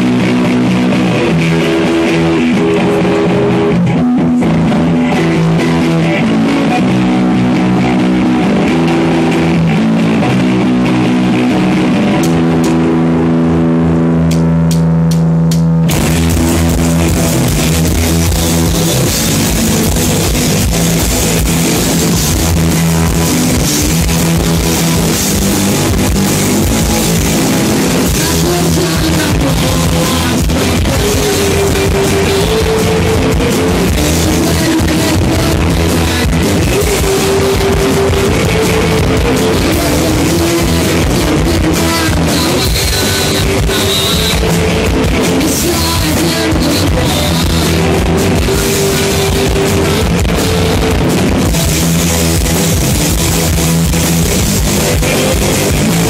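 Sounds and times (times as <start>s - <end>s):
live rock band playing: 0.0s - 56.0s
person singing: 16.6s - 51.3s.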